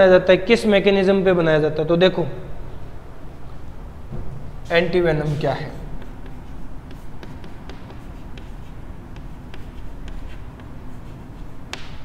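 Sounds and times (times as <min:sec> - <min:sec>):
low background hum: 0:00.0 - 0:12.0
chalk tapping and scratching: 0:04.7 - 0:12.0.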